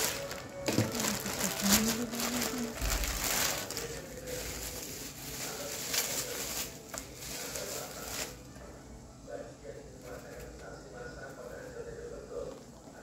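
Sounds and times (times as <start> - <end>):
plastic and bubble wrap crinkling: 0.0 - 8.6.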